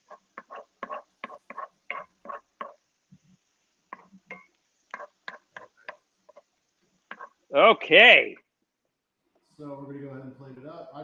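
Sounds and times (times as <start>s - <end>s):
spatula scraping skillet: 0.0s - 2.5s.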